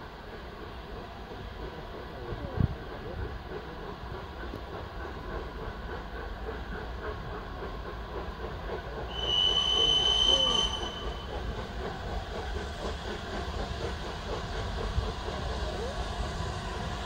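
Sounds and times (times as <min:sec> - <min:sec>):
train coaches rumbling past: 0:00.0 - 0:17.0
steel wheel squeal: 0:09.1 - 0:11.6.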